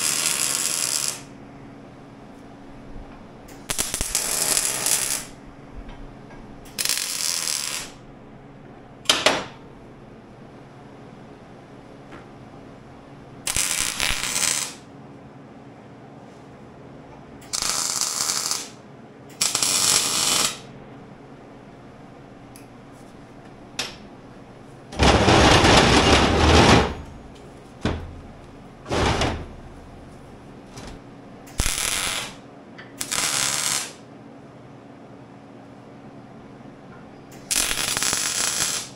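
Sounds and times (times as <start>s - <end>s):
arc welder crackling: 0.0s - 1.4s, 3.5s - 5.4s, 6.6s - 8.0s, 13.4s - 14.9s, 17.4s - 20.8s, 23.7s - 34.1s, 37.3s - 38.9s.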